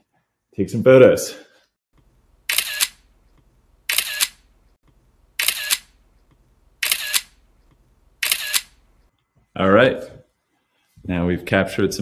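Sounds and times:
camera shutter click-clack: 2.5 - 3.0, 3.9 - 4.4, 5.4 - 5.9, 6.8 - 7.4, 8.2 - 8.8.

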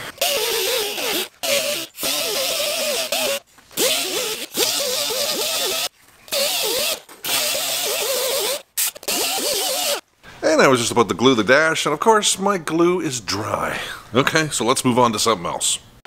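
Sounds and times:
air die grinder whining: 0.0 - 10.0.

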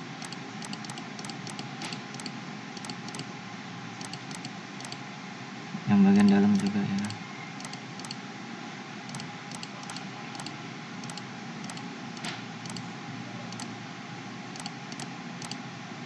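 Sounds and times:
mouse clicking: 0.2 - 3.3, 4.0 - 5.0, 6.2 - 8.2, 9.1 - 12.8, 14.6 - 15.6.

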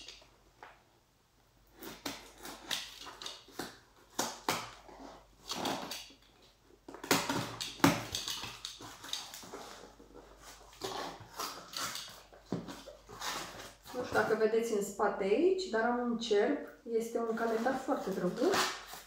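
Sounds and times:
box cutter scraping tape on cardboard: 7.1 - 14.1, 17.6 - 19.0.

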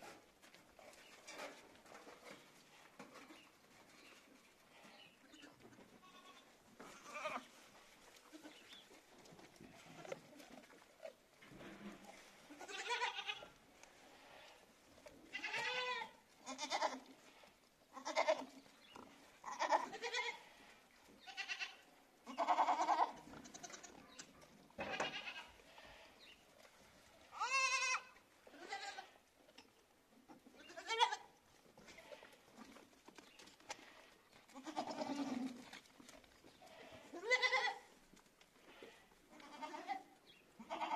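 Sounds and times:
goats bleating: 4.7 - 7.5, 12.4 - 14.6, 15.3 - 18.6, 19.4 - 24.1, 24.8 - 26.2, 27.3 - 29.2, 30.6 - 32.4, 33.7 - 35.7, 36.6 - 37.9, 38.6 - 40.9.

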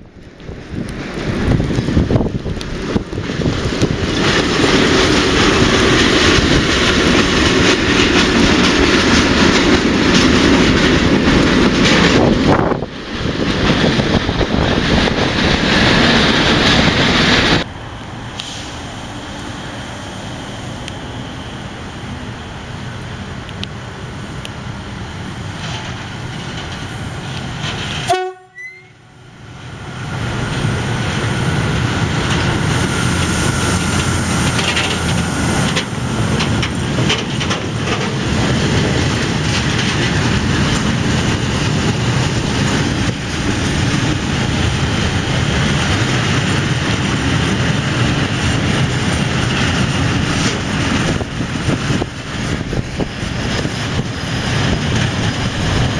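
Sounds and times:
train rumbling: 0.0 - 55.9
wheels clattering on rails: 0.1 - 17.7, 20.7 - 28.4, 30.1 - 55.9
train horn blast: 28.0 - 29.1.

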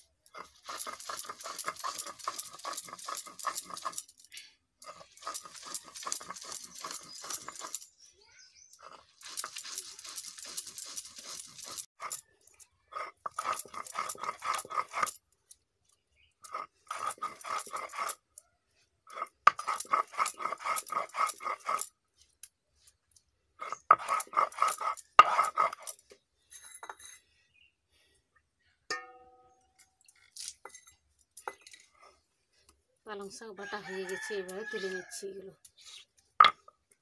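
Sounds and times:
stone roller scraping grinding stone: 0.2 - 8.0, 8.6 - 15.2, 15.9 - 22.4, 23.6 - 27.3, 30.1 - 32.6, 36.4 - 36.8.

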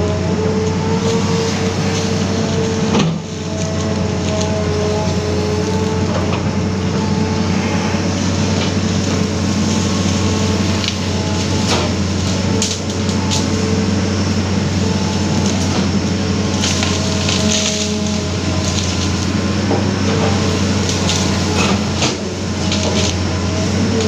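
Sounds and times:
diesel engine running: 0.0 - 24.0
machine whine: 0.0 - 24.0.

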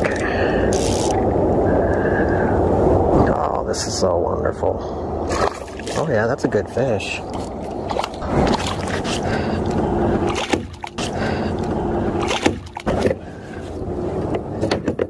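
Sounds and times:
water sloshing: 5.2 - 13.5
fish splashing in water: 5.3 - 6.1, 7.3 - 11.4, 12.2 - 12.9
knocks against hull: 10.3 - 11.1, 12.2 - 13.2.

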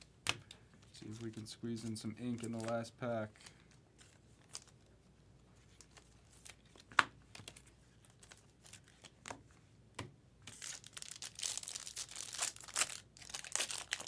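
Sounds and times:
foil wrapper crinkling and tearing: 10.5 - 14.0.

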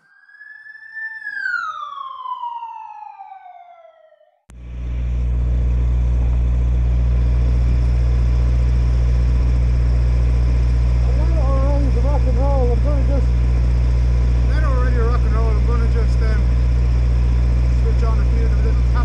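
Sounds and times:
siren-like sound effect: 0.0 - 4.5
low hum: 4.5 - 19.0.

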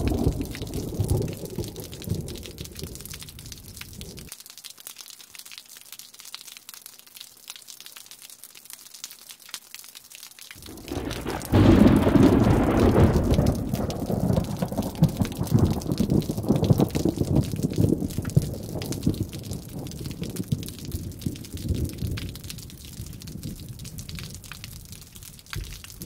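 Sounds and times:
rolling thunder: 0.0 - 4.3, 10.6 - 25.0
rain patter: 0.0 - 26.0.

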